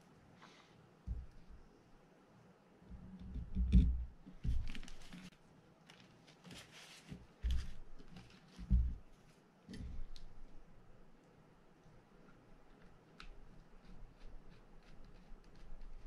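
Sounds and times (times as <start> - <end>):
paper towel rustling: 4.4 - 9.4.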